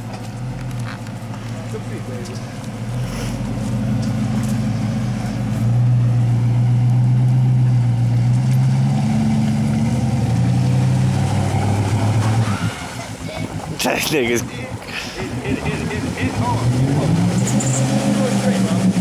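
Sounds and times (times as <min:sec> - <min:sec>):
truck engine running under load: 0:00.0 - 0:19.0.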